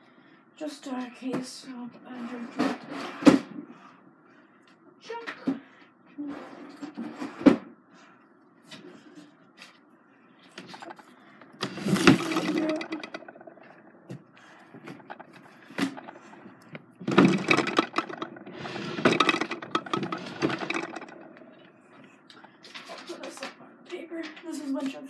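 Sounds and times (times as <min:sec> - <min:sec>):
small objects clattering: 0:11.6 - 0:14.0, 0:14.8 - 0:21.7.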